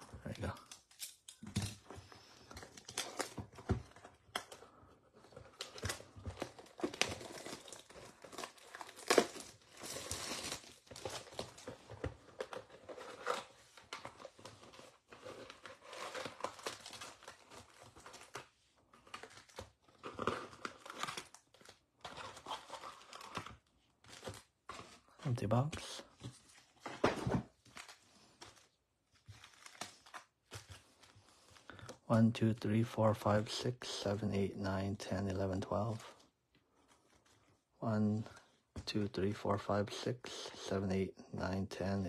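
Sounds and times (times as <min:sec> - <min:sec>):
plastic wrap crinkling and tearing: 0:00.0 - 0:25.1, 0:27.5 - 0:31.9.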